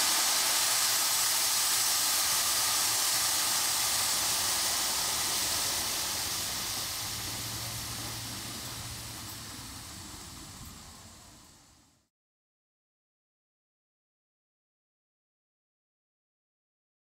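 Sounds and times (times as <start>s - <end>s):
locomotive steam hissing: 0.0s - 12.1s.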